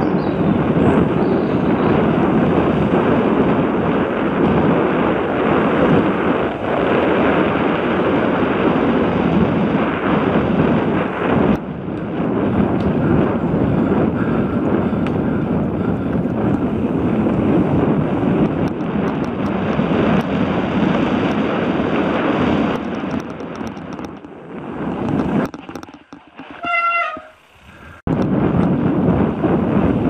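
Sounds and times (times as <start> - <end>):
bike tyre rumble on dirt: 0.0 - 30.0
wind buffeting microphone: 0.0 - 30.0
brief high squeal: 26.6 - 27.4.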